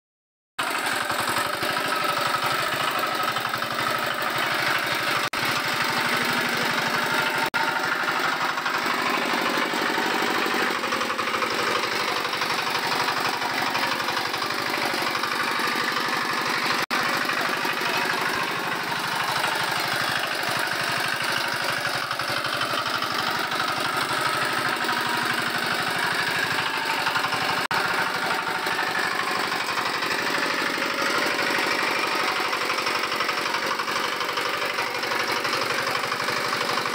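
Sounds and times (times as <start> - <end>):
power weeder engine knocking: 0.6 - 36.9.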